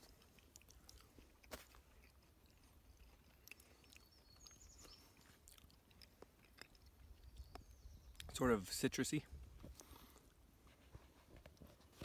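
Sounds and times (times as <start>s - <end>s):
mouth clicks of chewing: 0.0s - 8.3s.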